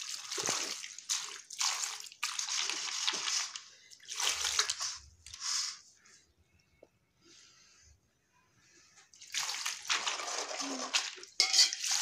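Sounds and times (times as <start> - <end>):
water sloshing and splashing in bowl: 0.0 - 5.4, 9.0 - 12.0.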